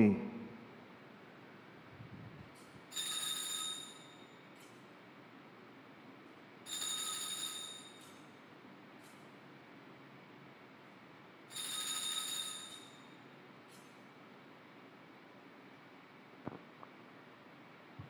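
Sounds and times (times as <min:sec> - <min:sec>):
altar bell ringing: 0:02.9 - 0:04.5, 0:06.6 - 0:08.3, 0:11.5 - 0:13.2.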